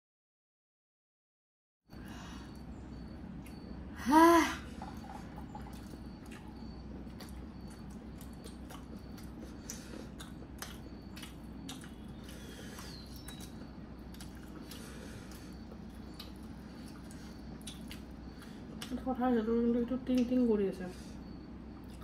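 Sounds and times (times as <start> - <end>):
steady low hum: 1.9 - 22.0
eating clicks and smacks: 5.0 - 19.0.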